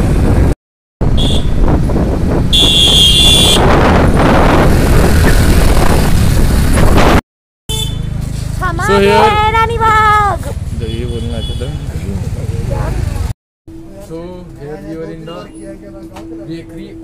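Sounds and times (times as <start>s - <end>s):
wind buffeting microphone: 0.0s - 7.2s
street traffic: 0.0s - 17.0s.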